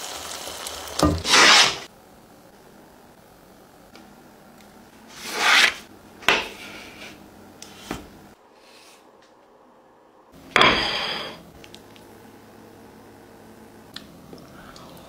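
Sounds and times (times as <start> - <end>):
food rubbing on baking tray: 1.2 - 1.9, 5.1 - 5.9, 6.5 - 8.0
metal spatula scraping tray: 1.2 - 1.9, 5.1 - 7.9, 10.6 - 11.4.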